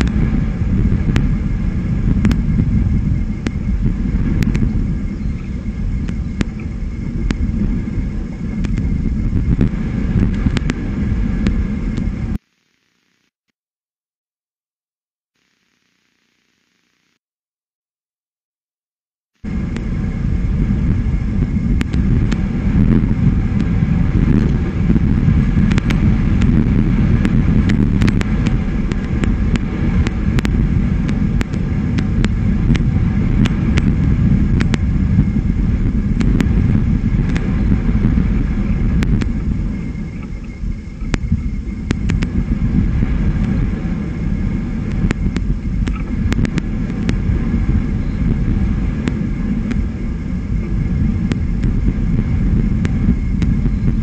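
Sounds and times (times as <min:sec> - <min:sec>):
wind rumbling on microphone: 0:00.0 - 0:12.4, 0:19.4 - 0:54.0
sharp clicks: 0:44.9 - 0:47.2.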